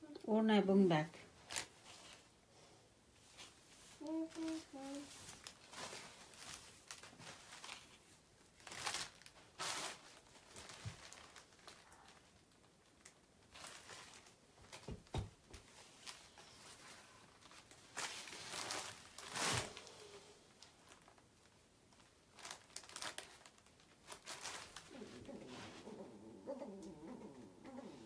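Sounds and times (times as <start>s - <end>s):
fabric rustling: 15.6s - 28.0s.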